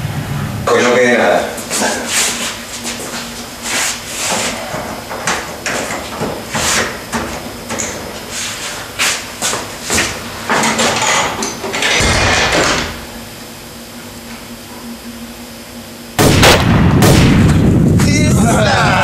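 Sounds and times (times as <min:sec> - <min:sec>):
wooden door thudding shut: 0:12.0 - 0:13.0.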